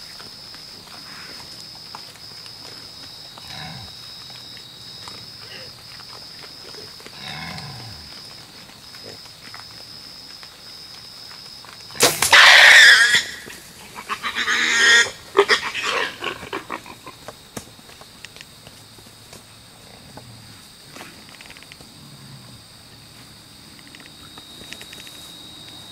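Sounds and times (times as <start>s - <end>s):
sharp crack: 12.0s - 13.6s
hog squealing: 12.2s - 16.8s.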